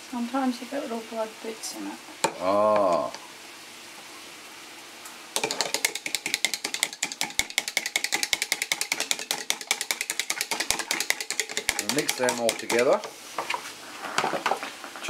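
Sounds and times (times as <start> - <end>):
whisk clicking against plastic cup: 5.4 - 13.0.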